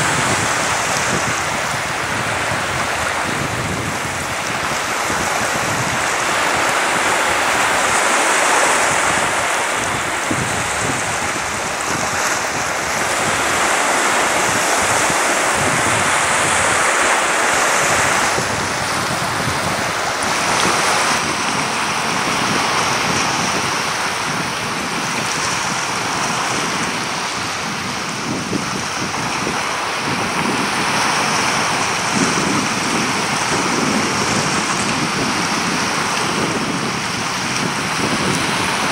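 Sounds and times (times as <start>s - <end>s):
sea surf washing over rocks: 0.0s - 38.9s
wind buffeting microphone: 0.0s - 38.9s.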